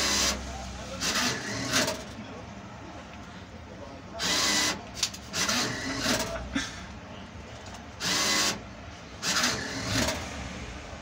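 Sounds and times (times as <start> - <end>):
banknote acceptor motor whirring: 0.0 - 2.2, 4.2 - 6.4, 7.9 - 10.3.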